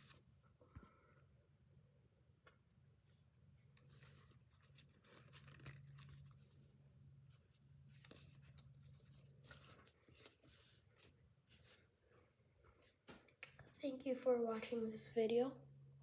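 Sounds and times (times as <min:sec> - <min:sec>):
paper rustling and crinkling: 0:00.0 - 0:00.2, 0:03.1 - 0:11.9
low steady hum: 0:00.0 - 0:16.0.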